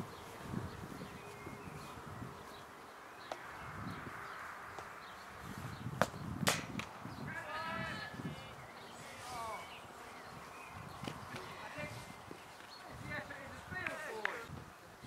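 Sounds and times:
chirping calls: 0.0s - 6.4s
open-air ambience: 0.0s - 15.0s
cricket bat striking ball: 6.0s - 6.9s.

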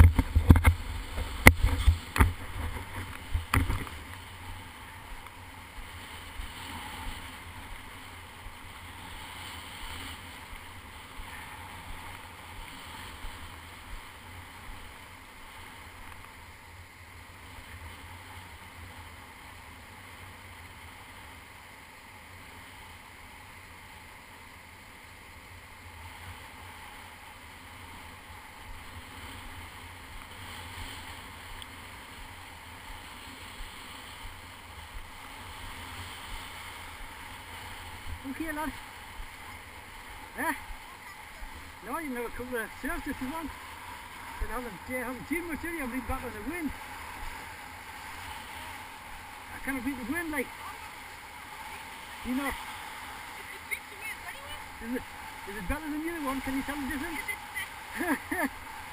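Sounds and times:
wind rumbling on microphone: 0.0s - 15.8s
surf washing up beach: 0.0s - 58.9s.

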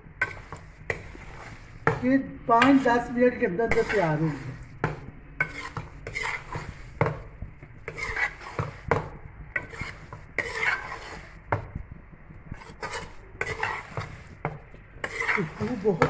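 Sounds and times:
spoon scraping metal pot: 0.2s - 11.7s, 12.5s - 16.0s.

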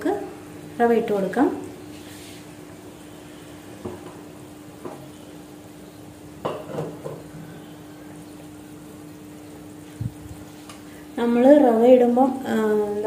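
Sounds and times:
water boiling in a pan: 0.0s - 13.0s.

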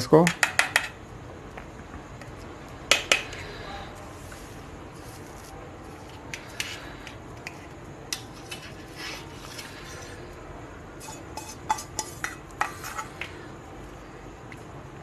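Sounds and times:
metal utensil scraping a pan: 8.1s - 10.2s, 11.0s - 13.3s.

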